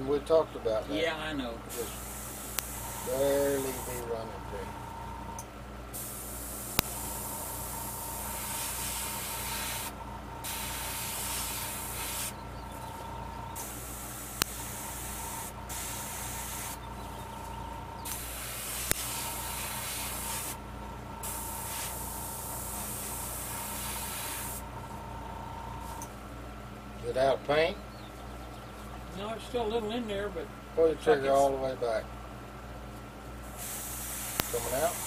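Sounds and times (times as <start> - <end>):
low hum: 1.2 - 27.1
airbrush spraying hiss: 1.7 - 4.1, 6.0 - 12.4, 13.6 - 16.8, 18.0 - 20.6, 21.2 - 24.7, 33.5 - 35.0
sharp clicks: 1.9 - 4.0, 6.7 - 9.9, 10.5 - 16.8, 17.4 - 20.6.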